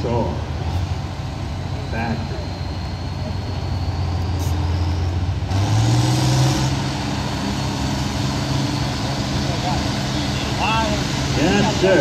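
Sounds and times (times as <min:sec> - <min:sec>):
tractor engine revving: 0:00.0 - 0:12.0.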